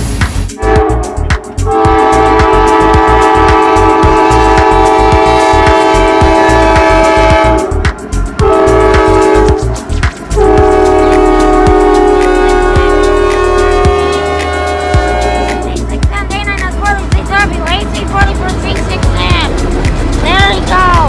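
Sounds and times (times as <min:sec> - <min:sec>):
diesel engine rumble: 0:00.0 - 0:21.0
locomotive air horn blasts: 0:00.6 - 0:07.8, 0:08.4 - 0:09.8, 0:10.4 - 0:15.9
wheels clicking on rails: 0:09.0 - 0:21.0.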